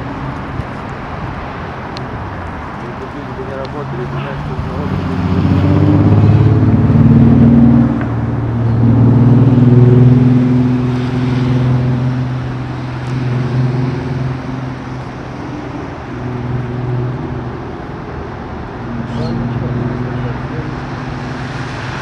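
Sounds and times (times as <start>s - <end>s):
vehicle engine humming: 0.0s - 22.0s.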